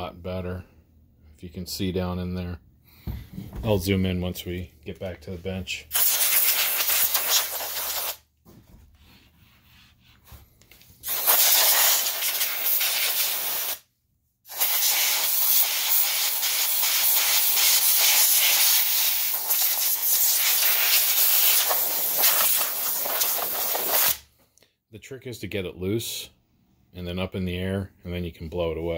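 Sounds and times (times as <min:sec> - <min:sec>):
compressed air nozzle hissing: 0:05.9 - 0:08.2, 0:11.0 - 0:13.8, 0:14.5 - 0:24.2.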